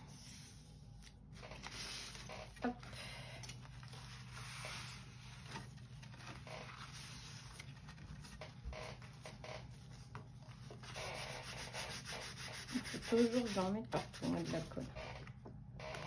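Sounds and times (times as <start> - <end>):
card rustling: 0.9 - 11.5
cloth rubbing on card: 1.4 - 2.6, 3.7 - 9.1, 9.7 - 14.9.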